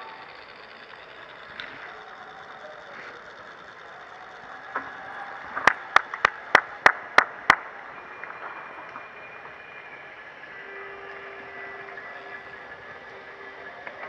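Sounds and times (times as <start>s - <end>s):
outdoor background noise: 0.0s - 14.0s
person clapping hands quickly: 5.6s - 7.7s.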